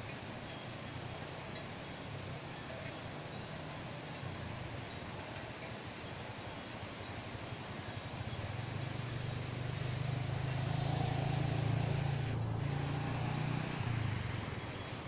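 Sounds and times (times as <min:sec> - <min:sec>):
steady background hiss: 0:00.0 - 0:15.0
passing vehicle engine hum: 0:07.9 - 0:15.0.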